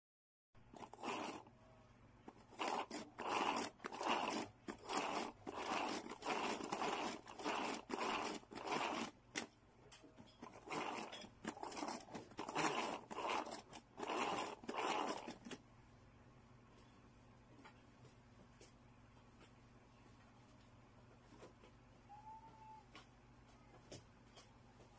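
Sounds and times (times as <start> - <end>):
food chopper blades spinning: 0.7 - 1.5, 2.3 - 9.5, 10.4 - 15.6.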